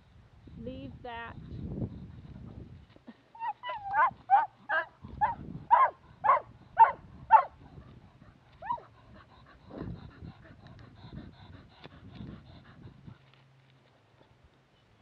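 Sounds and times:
dog yipping: 0:03.4 - 0:07.5, 0:08.6 - 0:08.8.

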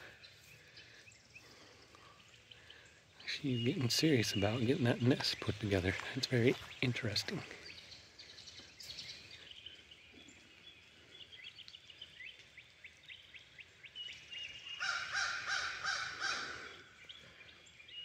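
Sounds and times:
birds chirping faintly: 0:00.0 - 0:18.0
rapid bird call: 0:14.7 - 0:17.0.

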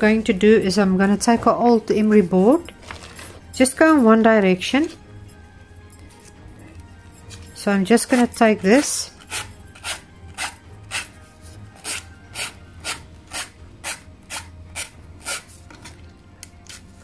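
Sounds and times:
emery board filing tin edge: 0:08.1 - 0:11.2, 0:11.8 - 0:15.5.

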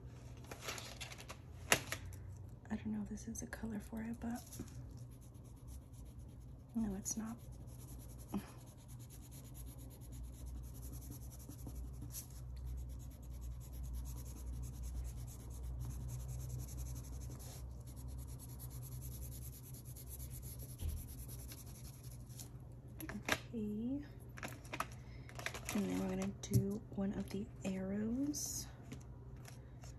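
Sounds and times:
pencil scribbling on paper: 0:05.0 - 0:22.3.

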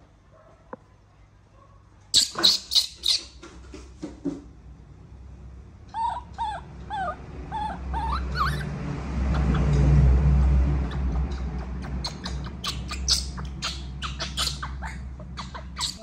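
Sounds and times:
baby monkey crying: 0:02.2 - 0:03.3, 0:05.9 - 0:08.7, 0:09.3 - 0:09.8, 0:10.8 - 0:16.0.

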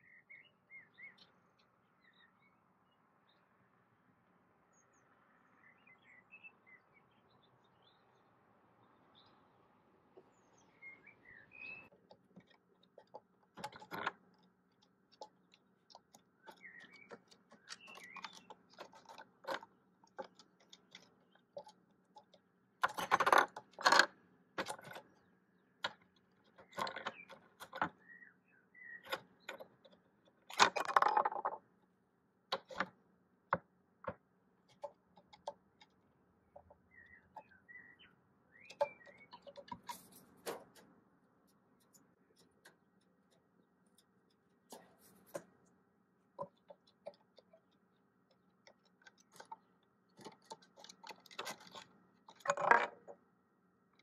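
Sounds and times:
small birds chirping: 0:00.0 - 0:03.8, 0:04.6 - 0:23.9, 0:24.6 - 0:53.2
wooden pegs knocking and clattering: 0:11.9 - 0:28.0, 0:29.0 - 0:31.7, 0:32.5 - 0:37.6, 0:38.6 - 0:41.0, 0:46.3 - 0:53.2.

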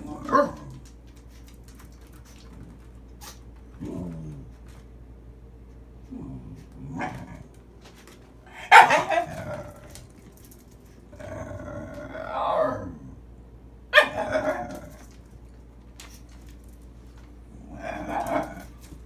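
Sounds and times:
dog yapping: 0:08.6 - 0:09.5, 0:14.0 - 0:14.8
dog growl-like call: 0:11.1 - 0:13.2, 0:17.5 - 0:18.7.

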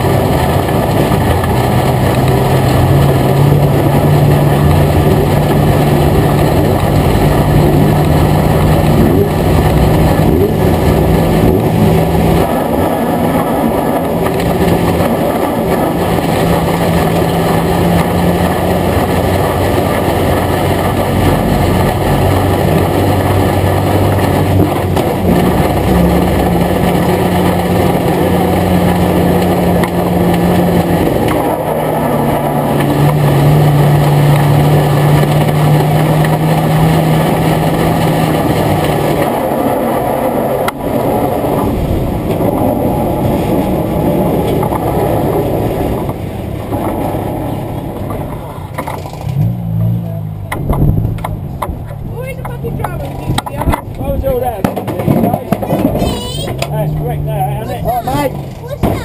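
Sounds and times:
steady rushing noise: 0:00.0 - 0:59.0
stock car engine running: 0:00.0 - 0:59.0.

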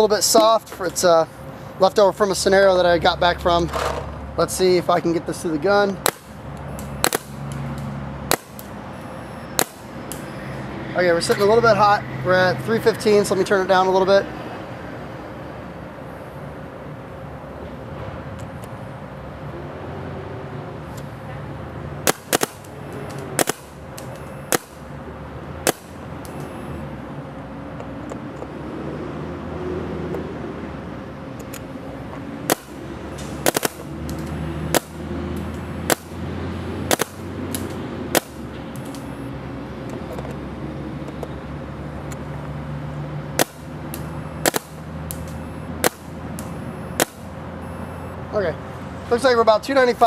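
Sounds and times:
steady low hum: 0:00.0 - 0:50.0
paintball marker shots: 0:06.0 - 0:06.4, 0:07.0 - 0:07.4, 0:08.3 - 0:08.7, 0:09.6 - 0:10.2, 0:22.0 - 0:24.8, 0:25.6 - 0:26.0, 0:32.5 - 0:35.0, 0:35.9 - 0:36.2, 0:36.9 - 0:39.1, 0:43.4 - 0:47.3.

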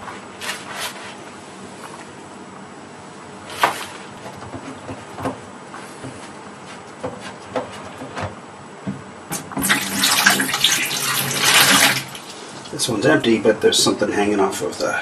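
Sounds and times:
water pouring into plastic bucket: 0:09.6 - 0:12.4.

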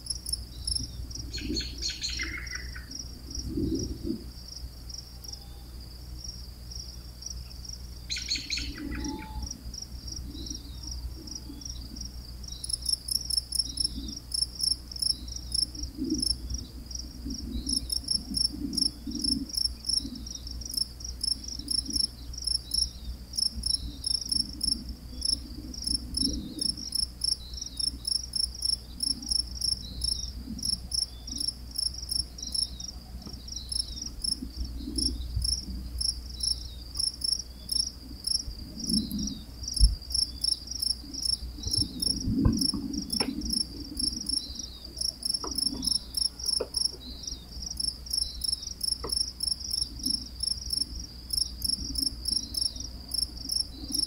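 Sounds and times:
crickets chirping: 0:00.0 - 0:54.0
faint low rumble: 0:00.0 - 0:54.0
low thump: 0:41.7 - 0:43.6.

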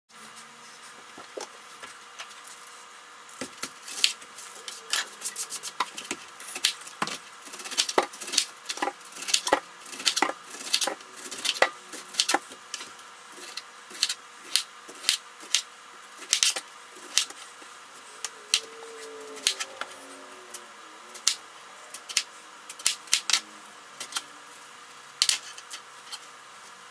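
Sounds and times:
rapid sharp knife clicks: 0:07.5 - 0:12.4.

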